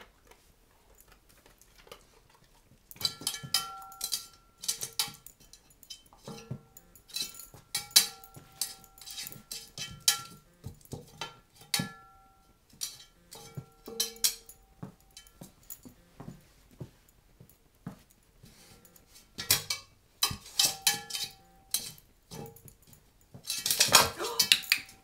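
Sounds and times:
dog claws scraping in metal pan: 0:08.0 - 0:10.3, 0:18.6 - 0:22.0, 0:23.4 - 0:24.8.

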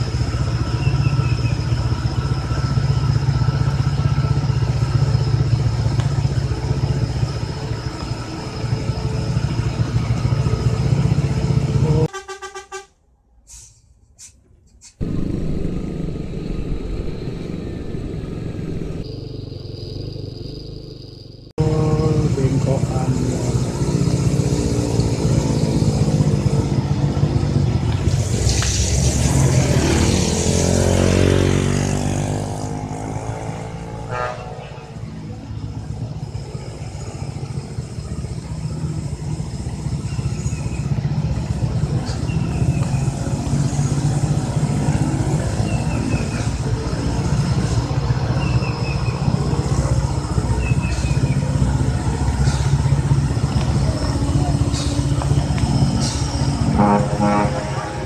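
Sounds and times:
diesel lorry engines droning: 0:00.0 - 0:58.0
vehicle passing by: 0:15.0 - 0:58.0.

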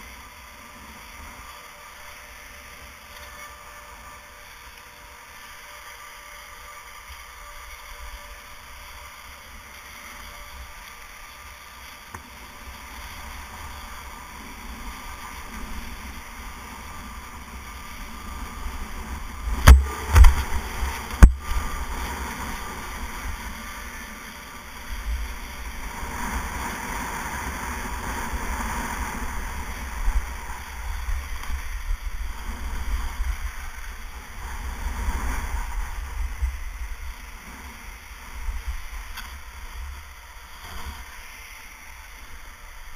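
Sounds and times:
skis scraping on snow: 0:00.0 - 0:42.9
sharp knocks: 0:19.6 - 0:20.4.

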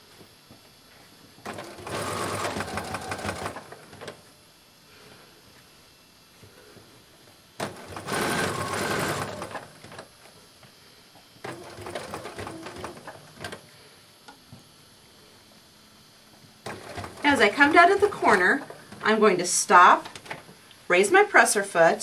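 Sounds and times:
sewing machine stitching: 0:01.4 - 0:04.2, 0:07.6 - 0:10.1, 0:11.4 - 0:13.6, 0:16.6 - 0:18.8.

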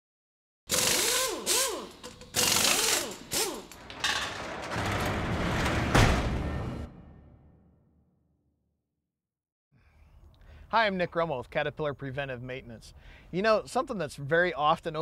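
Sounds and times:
mechanical whirring and ratcheting: 0:00.7 - 0:05.9
heavy hit: 0:04.0 - 0:07.9.

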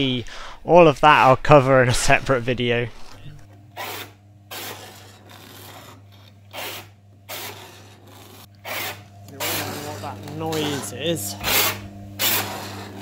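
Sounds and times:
motor humming: 0:02.6 - 0:13.0.

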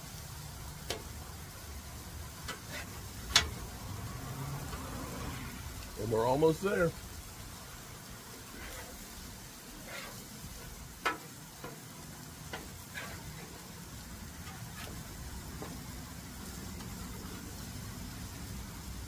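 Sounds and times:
crab cakes sizzling on griddle: 0:00.0 - 0:19.0
metal spatula scraping griddle: 0:02.3 - 0:05.6, 0:07.4 - 0:17.7.

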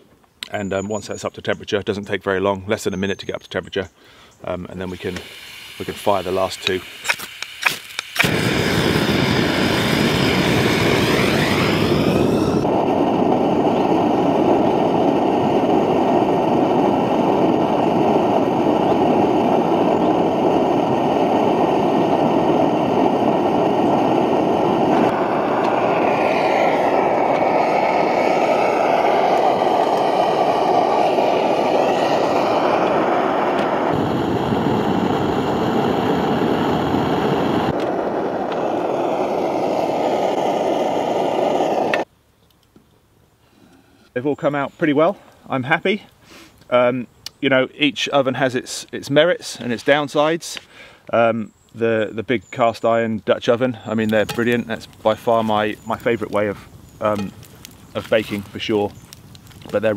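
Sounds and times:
gas stove burner hissing: 0:04.7 - 0:42.1, 0:53.9 - 0:59.9.

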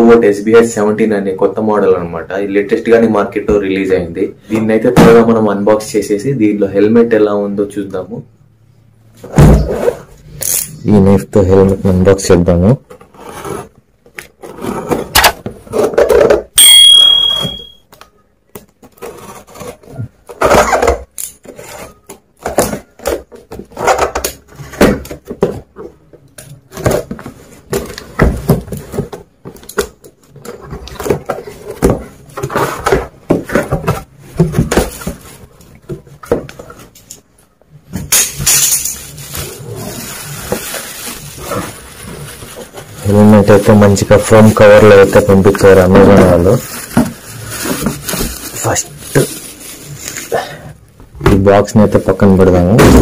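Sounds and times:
cardboard scraping and tearing: 0:13.0 - 0:13.8, 0:14.4 - 0:15.9, 0:18.9 - 0:20.8, 0:39.1 - 0:50.3
foam packing wrap rustling: 0:38.9 - 0:50.4.

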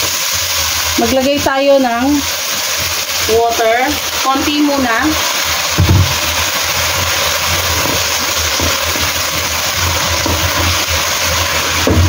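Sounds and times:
water sizzling in hot wok: 0:00.0 - 0:12.0
spatula stirring: 0:05.8 - 0:12.0.

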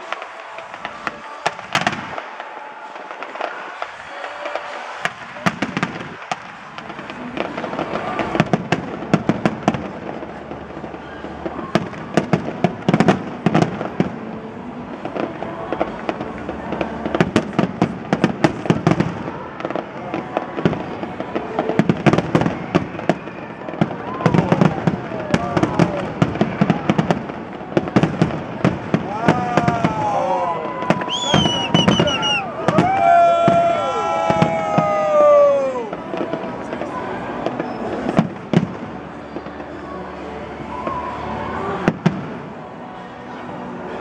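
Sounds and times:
fireworks bursting and crackling: 0:00.0 - 0:42.8.

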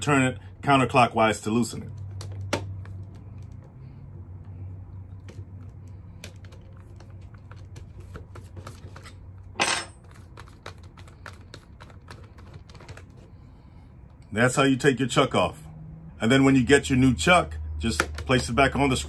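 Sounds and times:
metal key dropped on wooden bench: 0:09.6 - 0:10.0.

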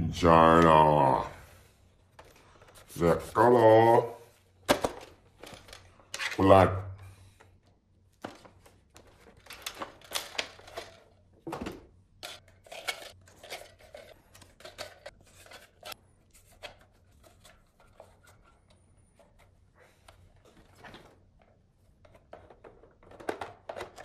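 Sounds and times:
plastic clicks and rattles: 0:22.1 - 0:24.0.

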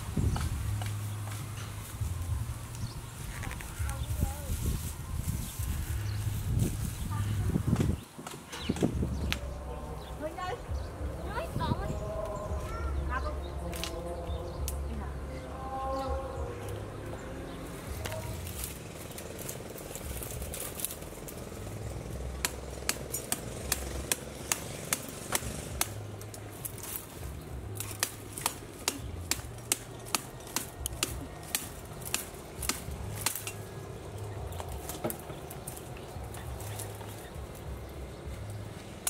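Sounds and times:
branches and twigs snapping: 0:07.7 - 0:09.5, 0:13.6 - 0:14.9, 0:17.8 - 0:39.0
low rumble: 0:08.8 - 0:24.5.

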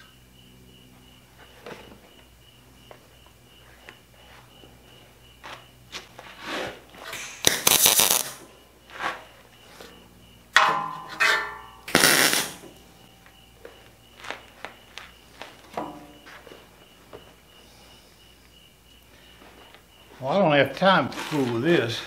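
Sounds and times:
welding arc crackle: 0:07.2 - 0:08.4, 0:11.9 - 0:12.6.

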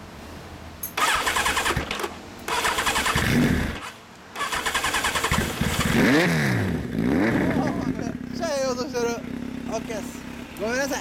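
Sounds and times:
motorcycle starter cranking: 0:00.8 - 0:06.0
motorcycle engine running: 0:05.1 - 0:11.0.

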